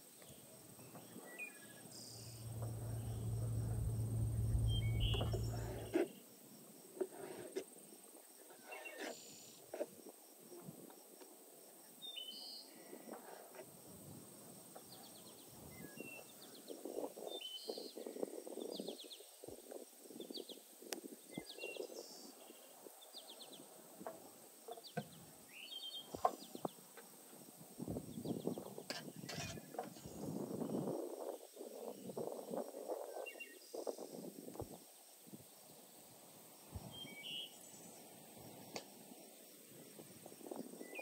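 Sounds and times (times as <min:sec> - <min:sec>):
small birds chirping: 0:00.2 - 0:06.0.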